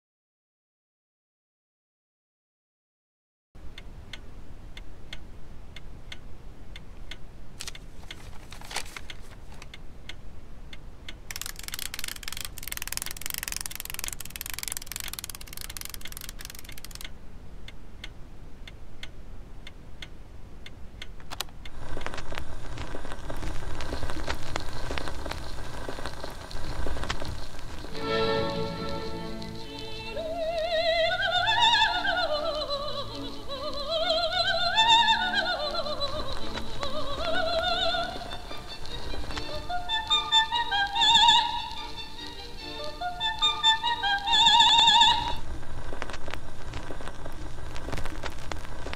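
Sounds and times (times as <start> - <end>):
needle crackle in record groove: 7.6 - 9.8, 11.3 - 17.1, 21.2 - 48.9
gramophone clicks: 10.8 - 17.2, 21.0 - 32.2
gramophone music: 23.0 - 45.5.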